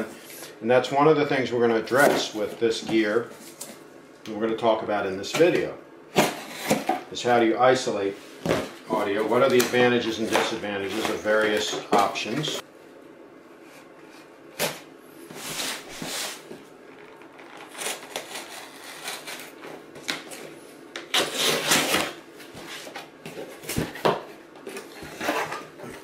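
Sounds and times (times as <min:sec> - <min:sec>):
air conditioning blower hissing: 0:00.0 - 0:26.0
cardboard scraping and rustling: 0:15.3 - 0:19.8, 0:21.2 - 0:26.0
knife slicing packing tape: 0:17.6 - 0:19.6, 0:21.1 - 0:22.2.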